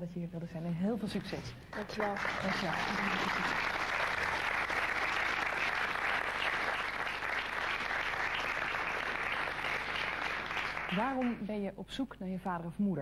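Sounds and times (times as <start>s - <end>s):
audience applauding: 1.7s - 11.5s.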